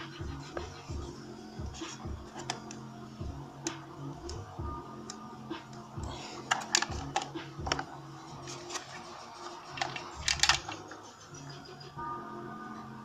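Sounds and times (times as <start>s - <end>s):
hard plastic parts clicking: 2.2s - 2.8s, 5.1s - 9.0s, 9.8s - 10.9s.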